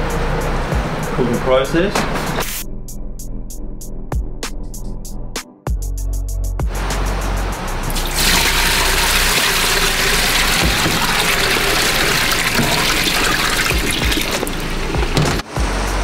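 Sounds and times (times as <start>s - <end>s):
tap water running into a sink: 7.9s - 15.4s.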